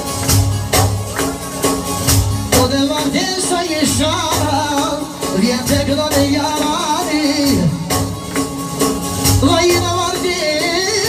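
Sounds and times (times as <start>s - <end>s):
percussion beat: 0.0s - 11.0s
man singing ornamented melody: 2.5s - 8.1s, 9.4s - 11.0s.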